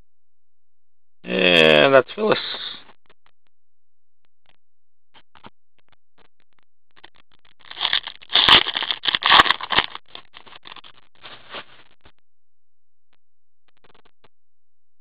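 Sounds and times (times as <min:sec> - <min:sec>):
foil wrapper crinkling and tearing: 0:07.6 - 0:11.7.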